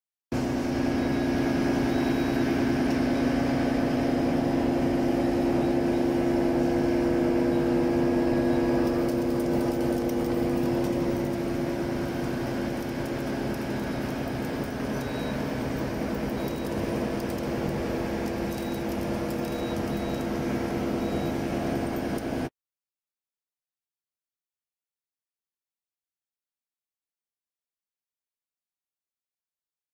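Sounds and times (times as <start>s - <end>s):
lathe machine hum: 0.4s - 22.5s.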